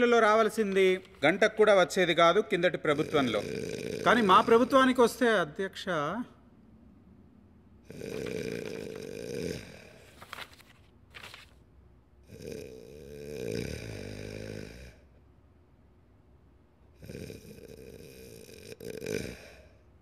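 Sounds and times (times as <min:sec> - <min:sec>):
man snoring: 0:02.9 - 0:04.9, 0:07.8 - 0:10.0, 0:12.2 - 0:15.0, 0:17.0 - 0:19.8.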